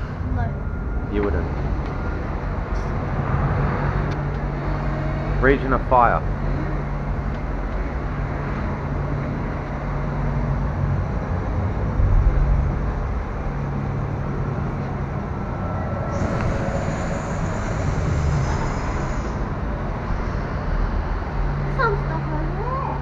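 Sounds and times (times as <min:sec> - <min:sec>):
tram rolling with low rumble: 0:00.0 - 0:23.0
steady hiss: 0:16.1 - 0:19.5.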